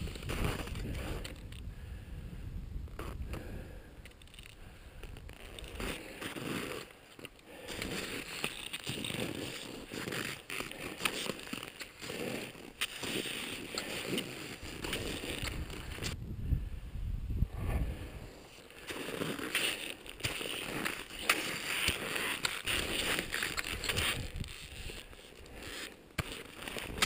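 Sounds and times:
boots crunching in snow: 0:00.0 - 0:01.3, 0:05.2 - 0:16.2, 0:18.2 - 0:27.0.

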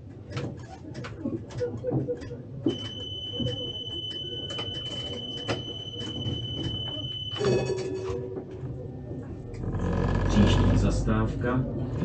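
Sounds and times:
knocks and clicks: 0:00.3 - 0:08.5
high-pitched electronic warning tone: 0:02.7 - 0:08.2.

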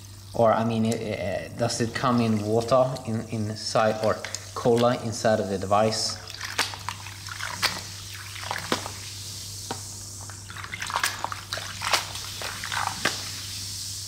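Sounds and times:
cola sloshing and fizzing: 0:00.2 - 0:14.0.

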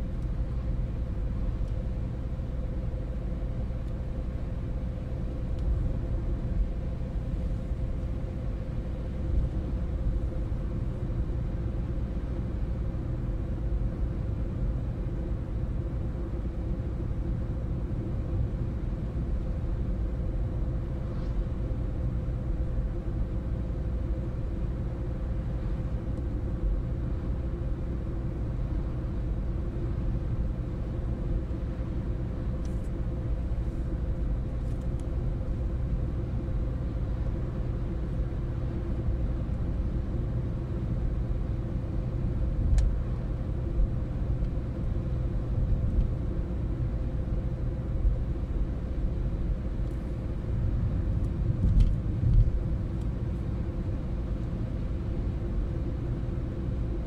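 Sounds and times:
constant hum: 0:00.0 - 0:57.0
car cabin road rumble: 0:49.4 - 0:55.0.

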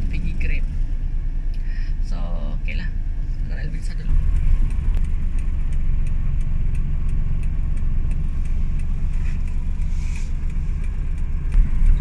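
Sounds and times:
car engine and road rumble: 0:00.0 - 0:12.0
faint regular ticking: 0:03.4 - 0:12.0.

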